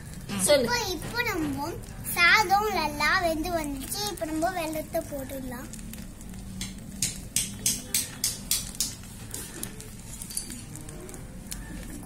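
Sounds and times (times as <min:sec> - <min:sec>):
steel spoon clinking on pot: 0:06.6 - 0:09.1.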